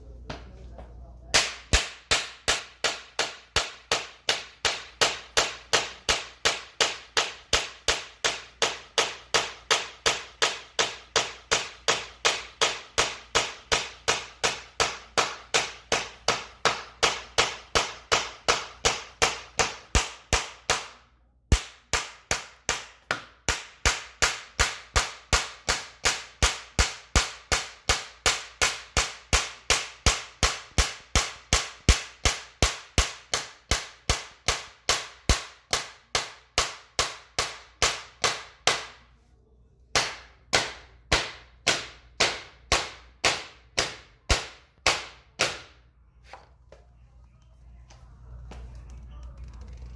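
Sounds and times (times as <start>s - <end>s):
rapid hammer taps: 1.3s - 39.0s.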